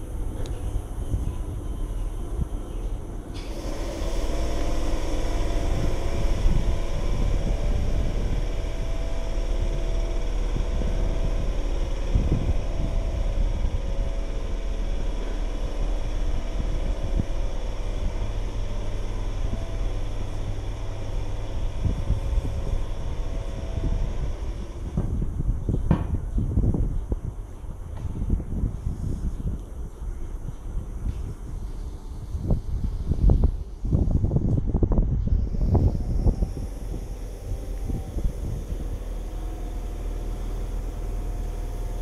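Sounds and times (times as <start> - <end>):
low rumble: 0.0 - 42.0
train equipment humming: 0.0 - 42.0.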